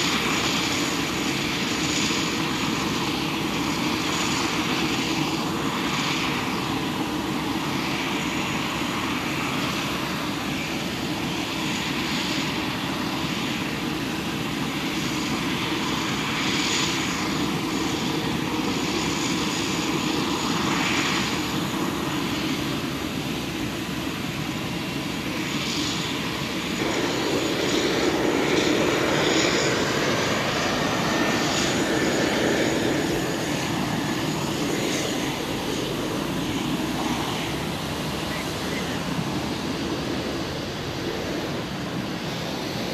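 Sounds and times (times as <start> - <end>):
jet aircraft rush and whine: 0.0 - 42.9
faint rising whine: 26.7 - 42.9.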